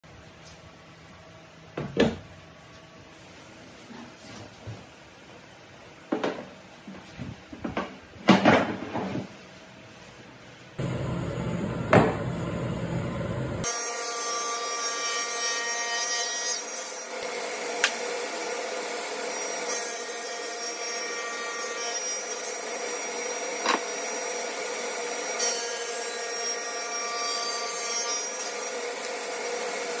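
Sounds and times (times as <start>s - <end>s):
table saw cutting wood: 10.8s - 30.0s.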